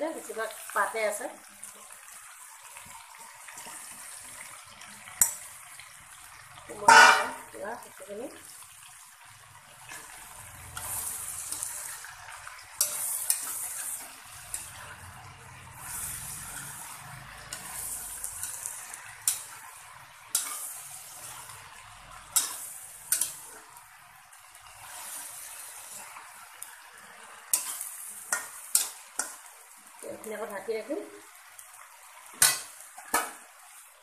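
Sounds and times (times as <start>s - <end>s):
greens sizzling in a wok: 0.0s - 34.0s
spatula knocking against pan: 6.9s - 7.4s.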